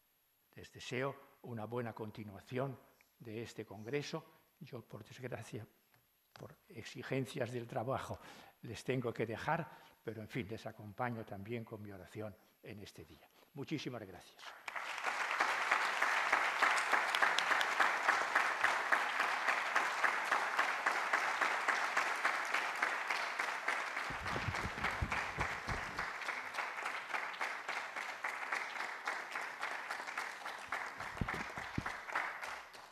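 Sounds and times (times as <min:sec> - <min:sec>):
audience applauding: 0:14.6 - 0:32.9.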